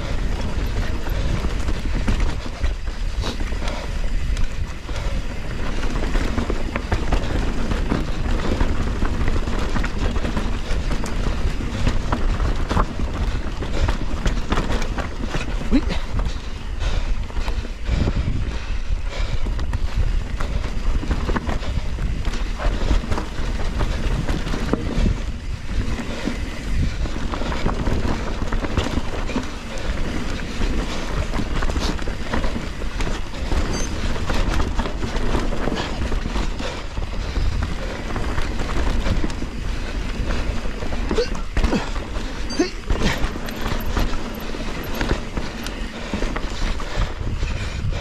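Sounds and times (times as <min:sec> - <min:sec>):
bike rattling over bumps: 0:00.0 - 0:48.0
bike tyres rolling over dirt: 0:00.0 - 0:48.0
wind buffeting microphone: 0:00.0 - 0:48.0.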